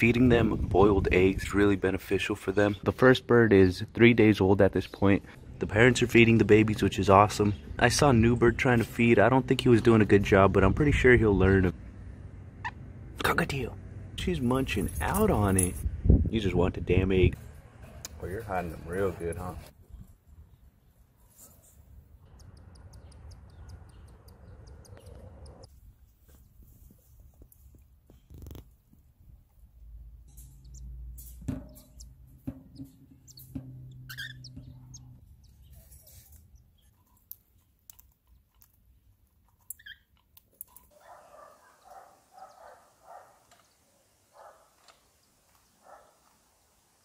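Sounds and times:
low rumbling: 9.5 - 19.7, 29.2 - 35.8
scattered clicks: 22.2 - 25.7, 37.0 - 40.9.

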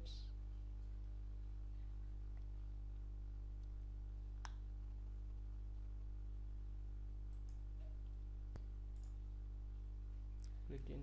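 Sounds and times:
computer mouse clicks: 7.3 - 7.6, 8.9 - 9.2.

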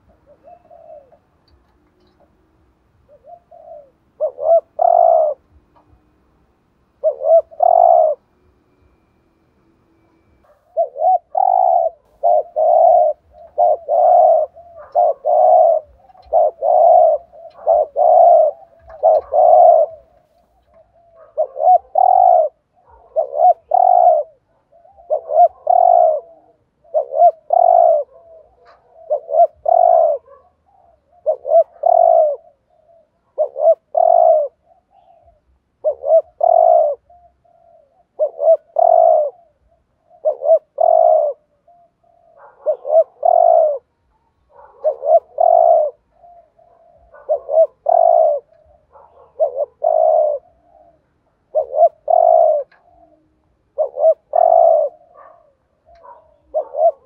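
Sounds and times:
dove cooing: 0.0 - 9.2, 9.9 - 57.0.

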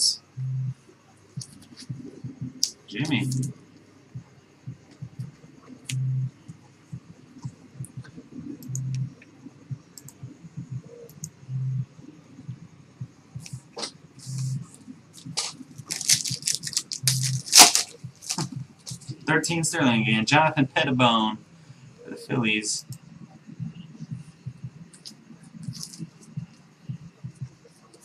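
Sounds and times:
short low hum pulses: 0.0 - 0.8, 1.4 - 3.5, 4.2 - 15.4
cards clicking and rustling: 15.2 - 19.1, 25.7 - 26.0
foil wrapper crinkling: 15.3 - 19.0.

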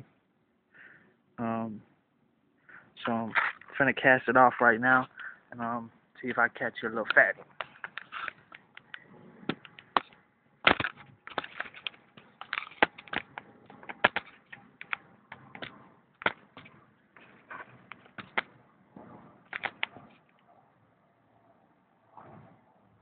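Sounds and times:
phone handling clicks and rubbing: 7.0 - 18.5, 19.5 - 20.0.

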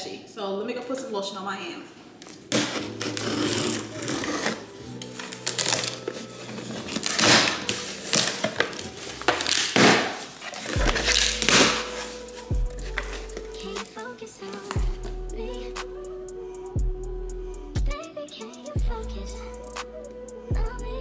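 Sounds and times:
packing tape tearing: 2.2 - 14.8
cardboard flaps rubbing: 2.5 - 12.2
soft background music: 2.5 - 21.0.

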